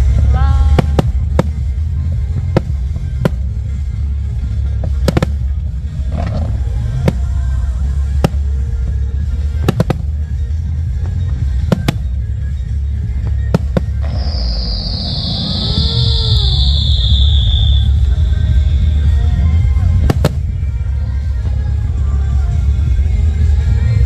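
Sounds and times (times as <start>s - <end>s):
low rumble: 0.0s - 24.0s
fireworks bangs: 0.6s - 3.9s, 4.8s - 18.2s, 20.0s - 20.6s
firework whistling: 9.4s - 19.1s
show music: 11.4s - 22.0s
loud hiss: 11.6s - 19.4s.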